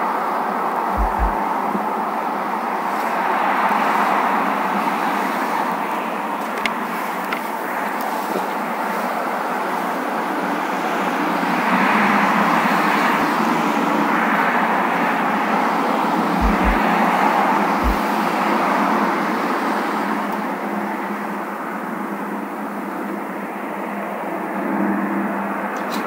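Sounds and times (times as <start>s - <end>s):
road traffic rushing: 0.0s - 20.6s
dull low thumps: 1.0s - 1.4s, 16.4s - 16.9s, 17.8s - 18.1s.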